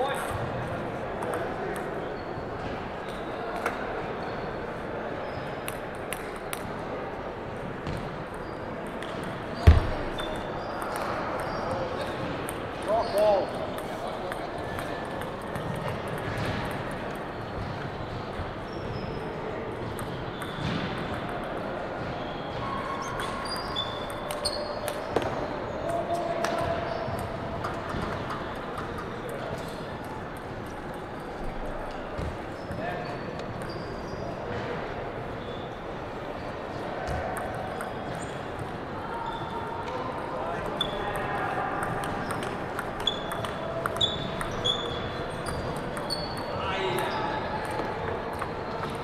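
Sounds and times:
table tennis ball bouncing: 7.8s - 12.9s, 13.6s - 18.5s, 19.7s - 22.2s, 23.1s - 31.5s, 37.0s - 38.7s, 40.6s - 49.0s
short high squeaks: 23.1s - 24.8s, 43.0s - 46.6s
table tennis ball clicks: 41.8s - 49.0s.

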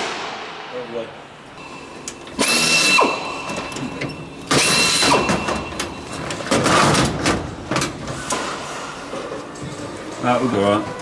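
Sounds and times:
pneumatic rivet gun hammering: 2.4s - 3.3s, 4.5s - 5.9s.

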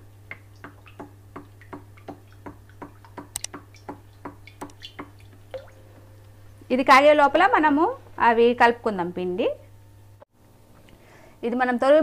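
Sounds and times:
low steady hum: 0.0s - 12.0s
sharp click: 3.3s - 3.6s.

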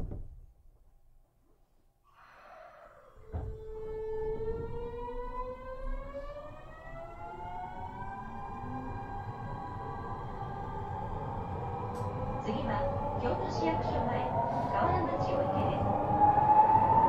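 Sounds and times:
thump: 0.0s - 0.5s, 3.3s - 3.6s
train motor whine rising in pitch: 2.9s - 12.4s.

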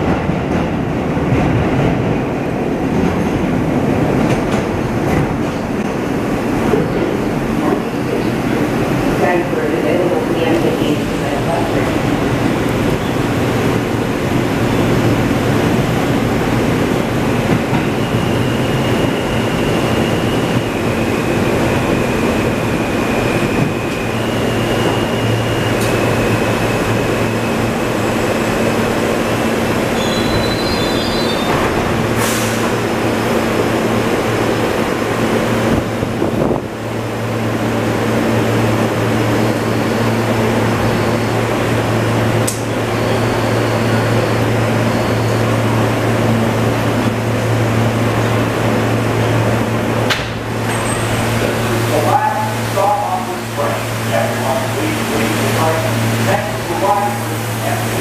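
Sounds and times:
subway train rumbling on track: 0.0s - 58.0s
wheel squeal: 29.9s - 31.6s.

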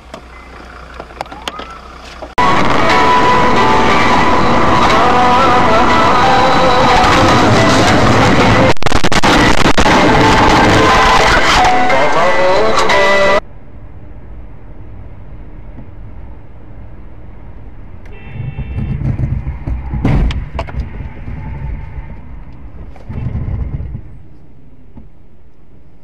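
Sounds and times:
car road and engine rumble: 0.0s - 26.0s
high-pitched tone: 2.4s - 13.4s
car collision bang: 18.4s - 21.6s.

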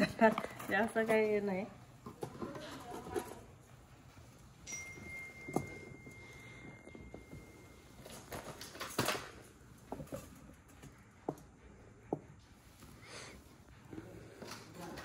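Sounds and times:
bangles clinking: 4.6s - 10.7s.

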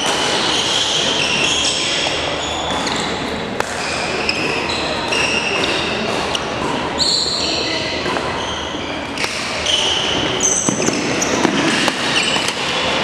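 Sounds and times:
murmur of voices: 0.0s - 13.0s
shoes squeaking on court: 0.0s - 13.0s
racket hitting shuttlecock: 3.6s - 6.9s, 9.2s - 9.7s, 10.5s - 13.0s.

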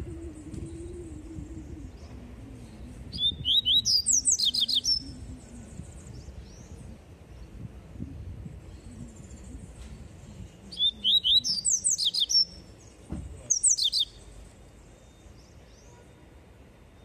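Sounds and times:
bird singing high whistled notes: 0.0s - 6.8s, 8.7s - 12.6s, 13.5s - 14.3s.

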